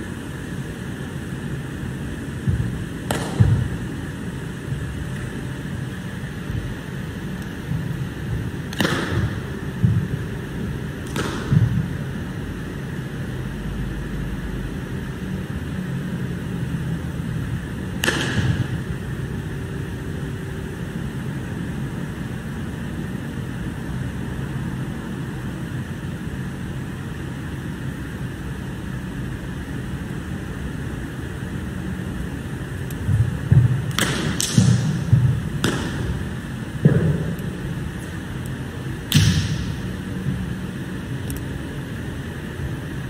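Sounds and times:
low hum: 0:00.0 - 0:15.2
sharp slap-like hits: 0:02.5 - 0:03.8, 0:08.6 - 0:10.1, 0:11.0 - 0:11.9, 0:18.0 - 0:18.8, 0:33.1 - 0:37.4, 0:39.1 - 0:39.8.

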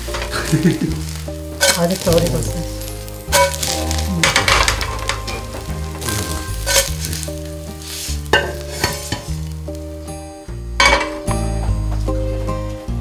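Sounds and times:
pan scraping: 0:00.0 - 0:09.4
pancake sizzling in oil: 0:00.0 - 0:11.1
soft background music: 0:00.0 - 0:13.0
pan knock: 0:10.8 - 0:11.3.

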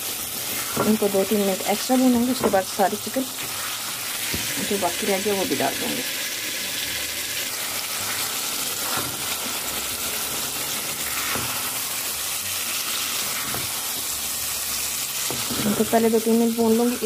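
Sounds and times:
chicken sizzling in oil: 0:00.0 - 0:17.0.

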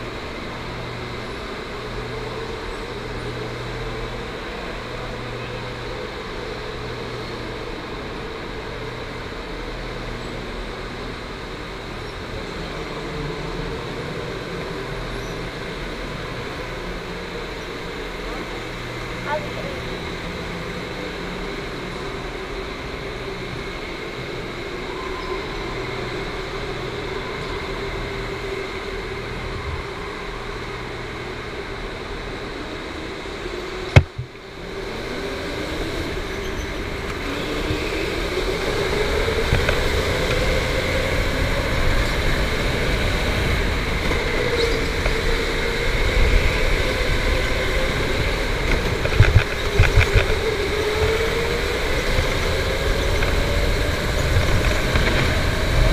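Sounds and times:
electric go-kart motor whining: 0:11.9 - 0:55.9.

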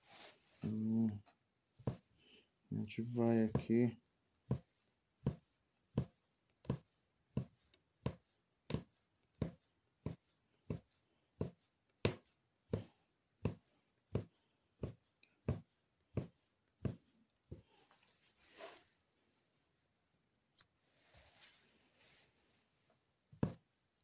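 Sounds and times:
punch needle tapping through fabric: 0:01.8 - 0:02.1, 0:04.3 - 0:17.6, 0:23.4 - 0:23.6.

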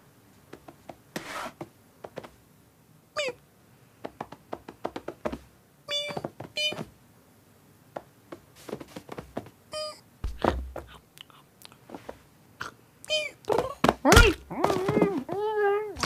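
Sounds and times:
light taps and scuffles: 0:00.4 - 0:02.4, 0:08.0 - 0:09.6, 0:10.2 - 0:11.0, 0:11.8 - 0:12.3
cartoon cat mewing: 0:03.2 - 0:03.4, 0:05.9 - 0:06.8, 0:13.1 - 0:16.0.

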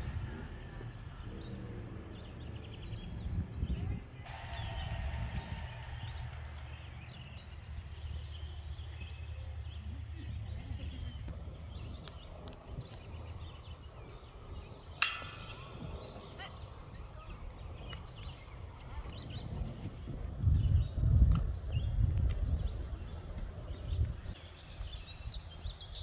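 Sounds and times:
wind rumble on microphone: 0:00.0 - 0:26.0.

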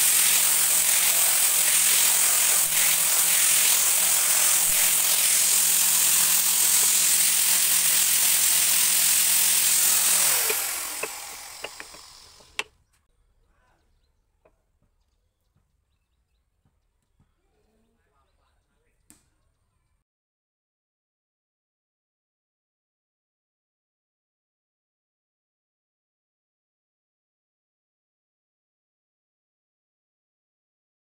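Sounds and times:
angle grinder sanding wood: 0:00.0 - 0:12.7
wood tapping on wood: 0:10.4 - 0:12.7.

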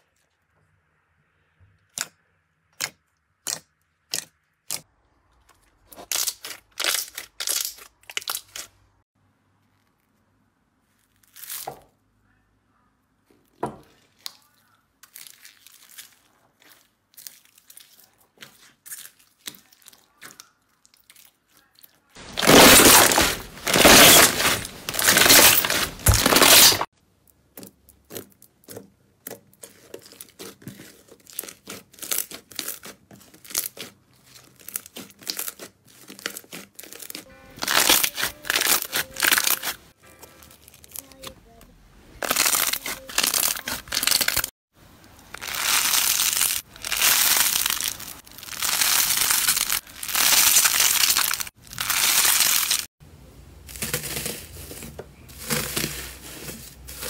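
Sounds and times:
slime crackling and popping: 0:06.0 - 0:08.7, 0:14.1 - 0:26.9, 0:28.0 - 0:39.8, 0:42.2 - 0:44.5, 0:45.2 - 0:52.9.

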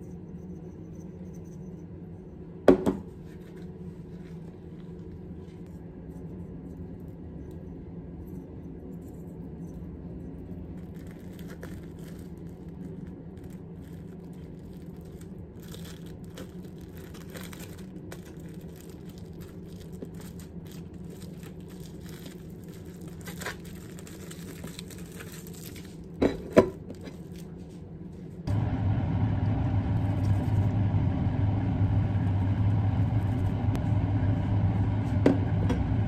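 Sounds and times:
steady low hum: 0:00.0 - 0:36.0
cling film crinkling: 0:10.8 - 0:26.2.

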